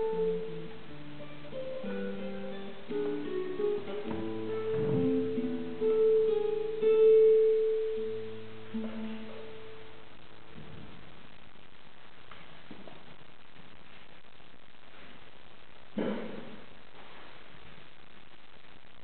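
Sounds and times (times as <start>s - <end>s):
classical guitar fingerstyle: 0.0s - 9.8s.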